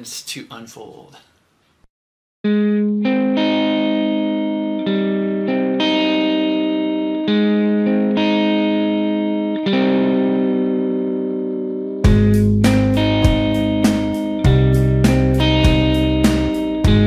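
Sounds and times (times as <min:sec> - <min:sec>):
guitar chords with effects: 0:02.4 - 0:17.0
drums and bass: 0:12.0 - 0:17.0.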